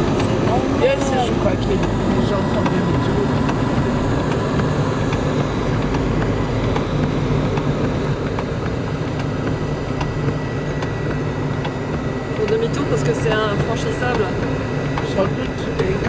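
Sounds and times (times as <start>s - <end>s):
car engine and tyre rumble: 0.0s - 16.0s.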